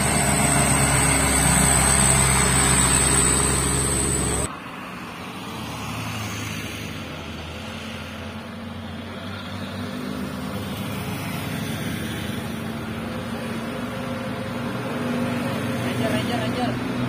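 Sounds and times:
diesel truck engine labouring: 0.0 - 4.5
cars and motorcycles passing: 0.0 - 17.0.

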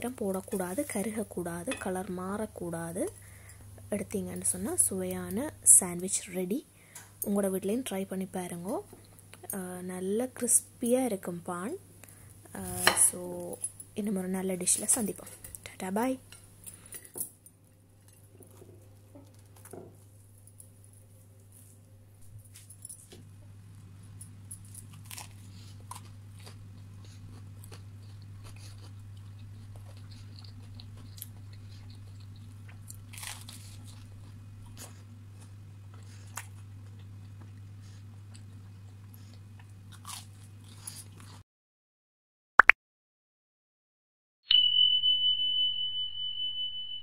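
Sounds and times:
toasted bread crunching: 22.5 - 37.6.

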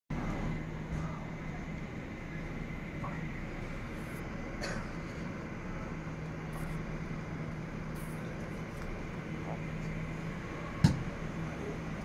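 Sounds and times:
airport drone: 0.1 - 12.0.

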